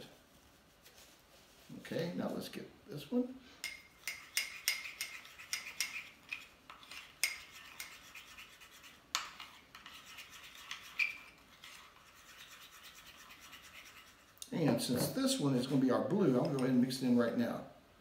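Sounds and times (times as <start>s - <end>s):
metal spoon scraping ceramic bowl: 3.6s - 14.2s.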